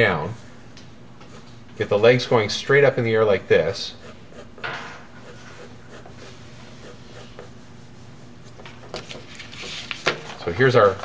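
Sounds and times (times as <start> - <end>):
pencil scratching on paper: 1.2 - 2.4, 3.6 - 8.7.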